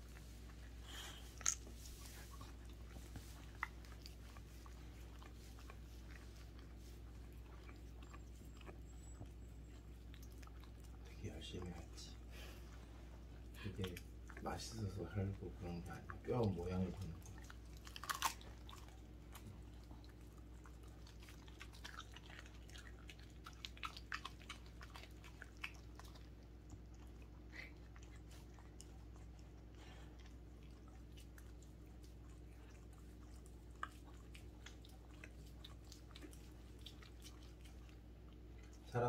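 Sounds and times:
low steady hum: 0.0 - 39.0
dog crunching bones: 15.3 - 38.9.

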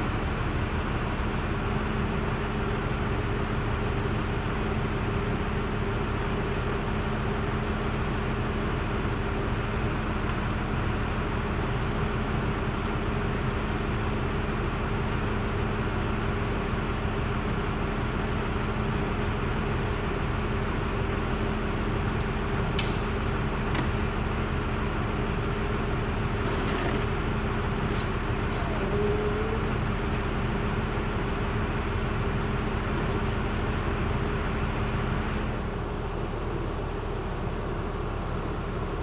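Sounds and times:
mechanical drone with hum: 0.0 - 39.0.

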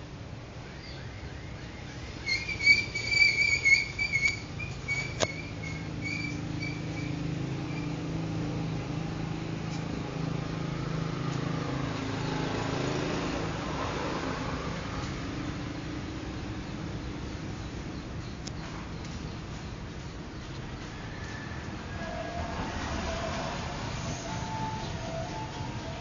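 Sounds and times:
budgerigars chirping: 0.8 - 7.8.

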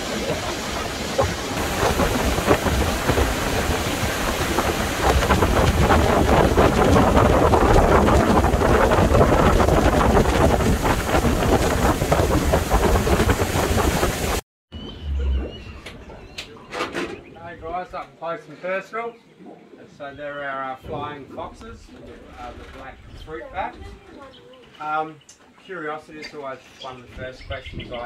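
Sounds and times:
rushing water: 0.0 - 14.4
wind buffeting microphone: 0.0 - 14.4
boat engine low rumble: 0.0 - 16.7.

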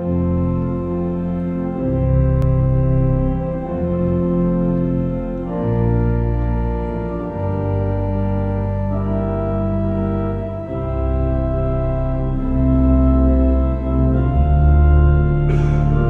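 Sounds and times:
church organ chords: 0.0 - 16.0.

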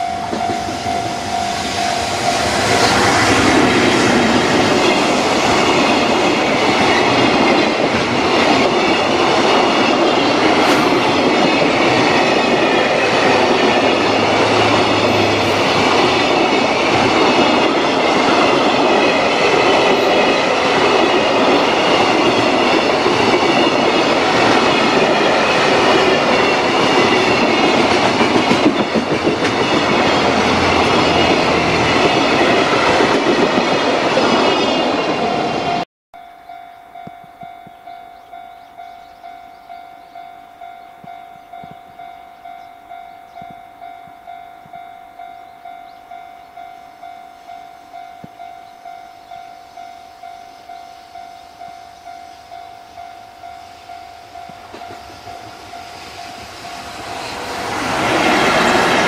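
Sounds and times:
wheels clacking over rail joints: 0.0 - 35.3
freight train rumbling past: 0.0 - 35.9, 37.4 - 59.0.

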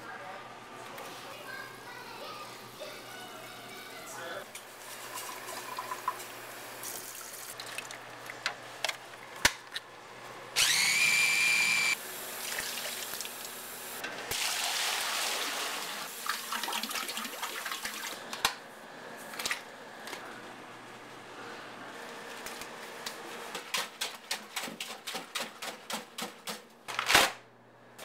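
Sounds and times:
electric motor whining: 10.6 - 12.0.

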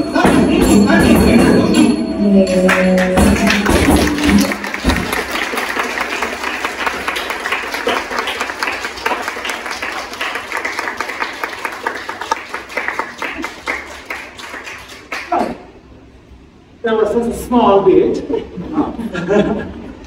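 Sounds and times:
small audience applauding: 2.6 - 15.7.

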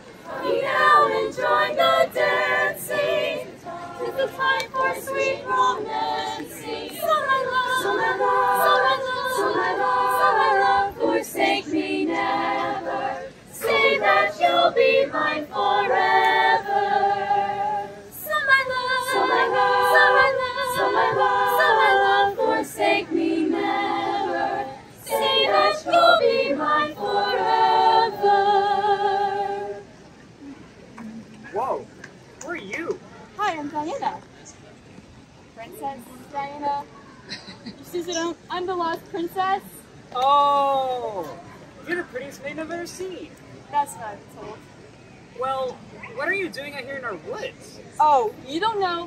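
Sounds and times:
choir singing a cappella: 0.0 - 29.9.

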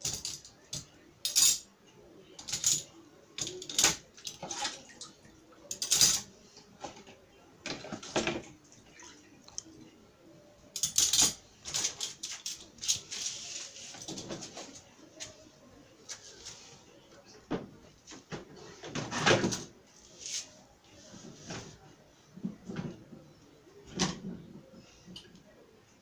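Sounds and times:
metal cutlery clinking: 0.0 - 1.7, 2.4 - 4.6, 5.7 - 6.3, 10.7 - 13.2.

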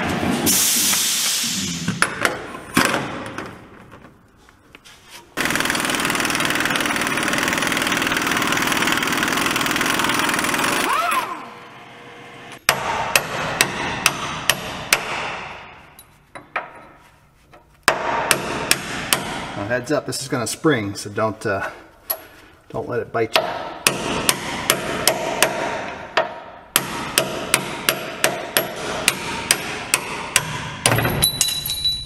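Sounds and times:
power tool running: 5.4 - 12.6.

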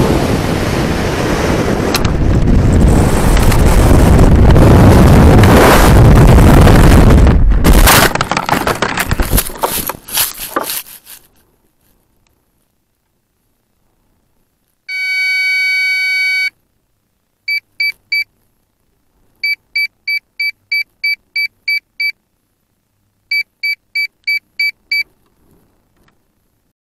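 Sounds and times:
wind rush: 0.0 - 8.2
electronic beeper tone and beeps: 14.9 - 16.5.

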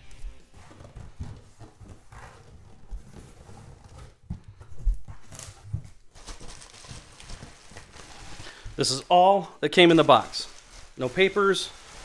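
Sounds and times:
cardboard box knocks and thumps: 0.6 - 6.6
packaging rustle: 4.9 - 9.2, 9.8 - 12.0.

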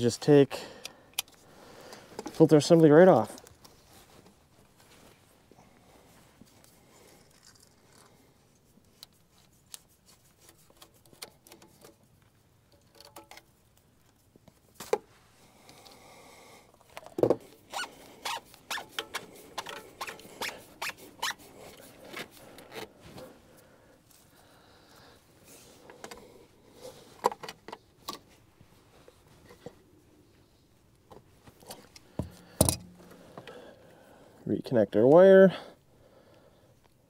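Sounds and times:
fuel filter clicks and scrapes: 6.4 - 15.1, 16.8 - 23.3.

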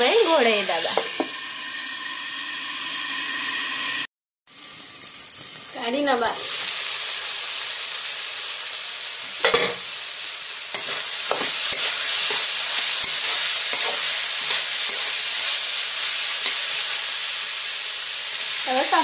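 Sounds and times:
vegetables sizzling in hot oil: 0.0 - 19.0
spatula scraping a pan: 10.7 - 15.6.

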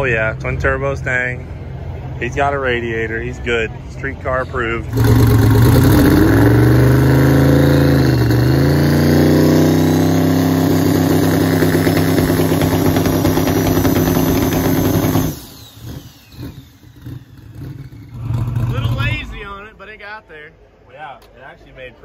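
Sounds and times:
drag car engine revving hard: 4.8 - 19.7.

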